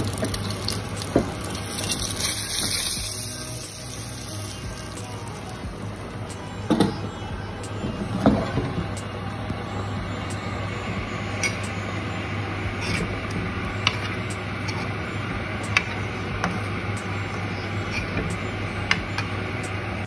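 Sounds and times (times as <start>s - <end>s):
eggs sizzling in a pan: 0.0s - 5.6s
low hum: 0.0s - 20.0s.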